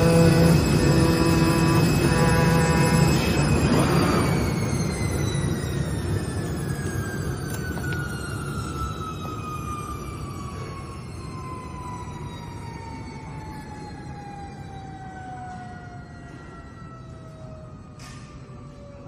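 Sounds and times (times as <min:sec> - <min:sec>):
motor whine winding down: 0:00.0 - 0:14.5.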